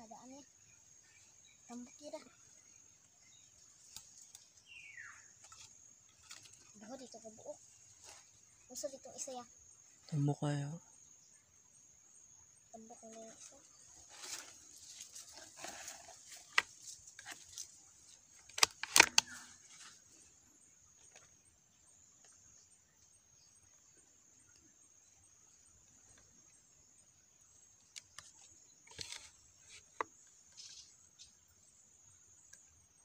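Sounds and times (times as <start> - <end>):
insects chirring at high pitch: 0.0 - 33.0
rustling in dry leaves: 13.1 - 20.3.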